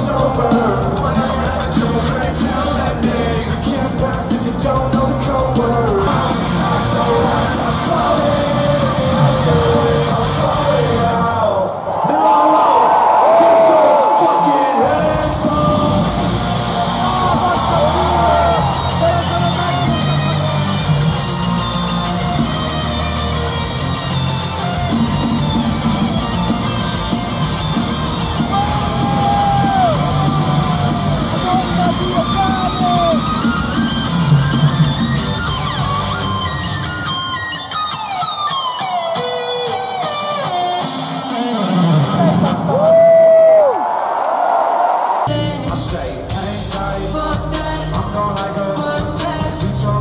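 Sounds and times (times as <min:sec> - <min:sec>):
live rock band playing: 0:00.0 - 0:11.0, 0:14.9 - 0:42.7, 0:45.3 - 0:50.0
man singing into microphone: 0:00.0 - 0:12.2, 0:13.5 - 0:16.3, 0:45.3 - 0:50.0.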